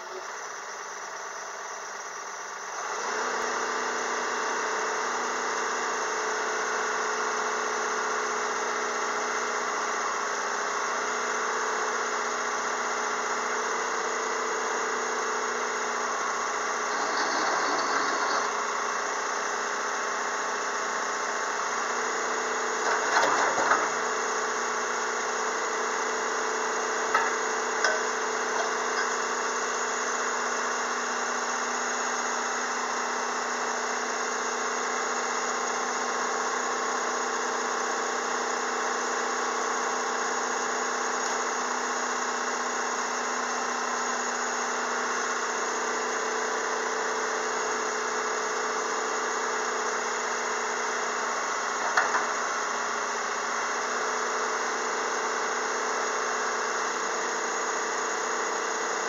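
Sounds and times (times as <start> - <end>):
excavator diesel engine running: 0.0 - 34.2.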